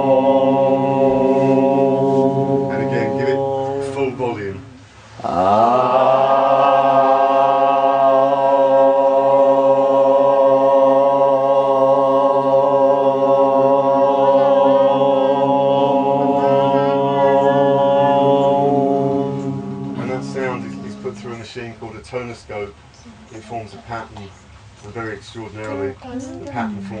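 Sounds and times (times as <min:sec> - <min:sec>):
group chanting one held note: 0:05.2 - 0:21.5.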